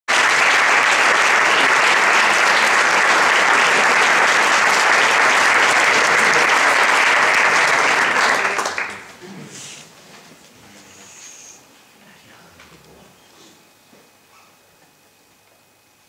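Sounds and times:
audience applauding: 0.1 - 9.2.

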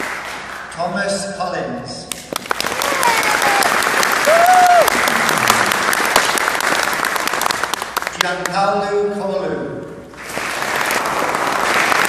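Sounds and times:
audience applauding: 0.0 - 0.7, 2.3 - 8.6, 10.1 - 12.0
shouted cheers: 2.7 - 5.2.

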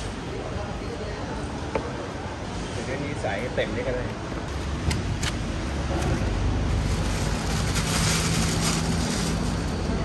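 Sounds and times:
street traffic rumble: 0.0 - 10.0
plastic bag rustling: 5.9 - 10.0.

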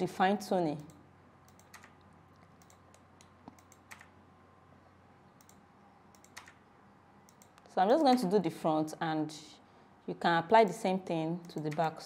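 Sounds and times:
keyboard and mouse clicks: 0.8 - 4.2, 5.4 - 6.6, 7.3 - 8.3, 11.4 - 12.0.

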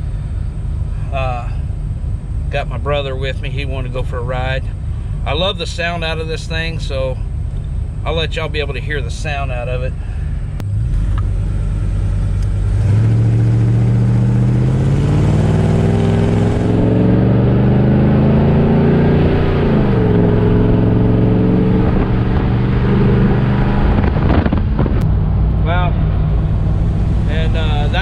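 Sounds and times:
engine accelerating: 0.0 - 28.0.

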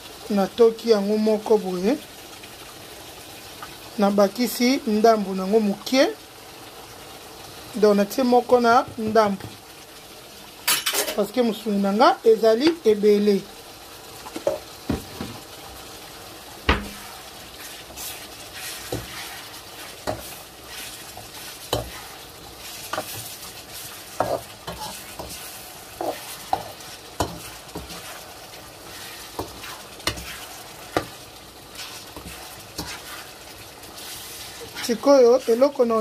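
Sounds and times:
meat and onions sizzling: 0.0 - 36.0
metal spoon scraping a pan: 16.8 - 36.0.

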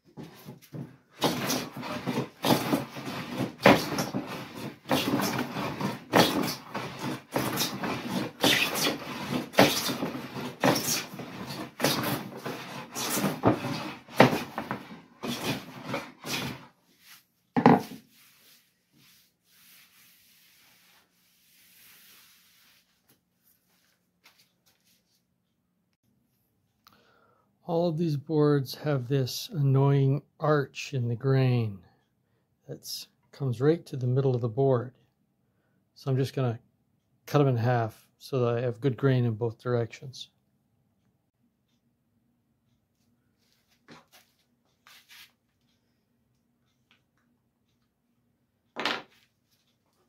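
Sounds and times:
hand plane rasping on wood: 1.2 - 16.7
wooden knock: 17.6 - 18.0.

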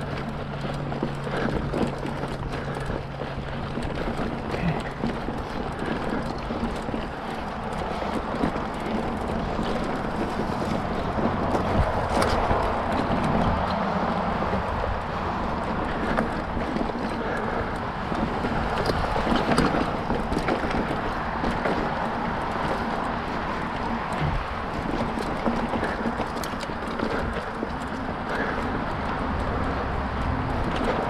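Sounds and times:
bike clicks and rattles: 0.0 - 31.0
tyre noise on dirt: 0.0 - 31.0
wind on microphone: 4.6 - 26.3.

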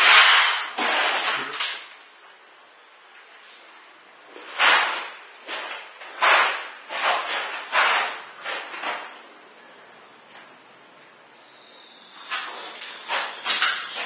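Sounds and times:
trowel scraping floor: 0.0 - 1.8, 4.3 - 9.2, 12.1 - 14.0.

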